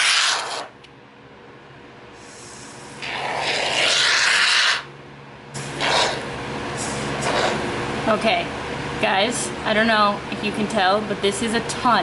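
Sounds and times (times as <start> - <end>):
aerosol foam can hissing: 2.2 - 4.9.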